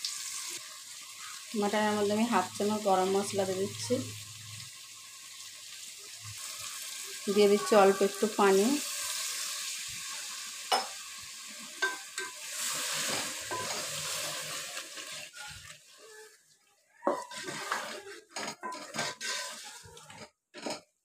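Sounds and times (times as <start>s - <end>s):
water hissing in a hot pot: 0.0s - 20.2s
spatula scraping a pot: 11.7s - 16.3s, 17.0s - 20.8s.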